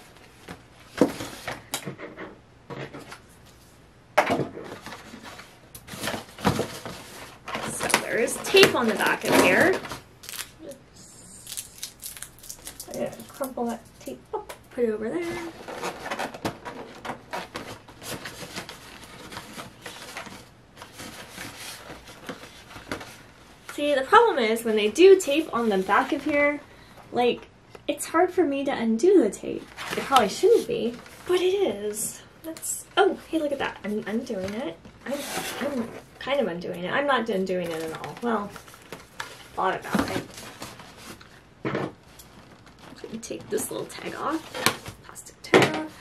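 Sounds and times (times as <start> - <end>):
cardboard scraping and rubbing: 35.0 - 36.1.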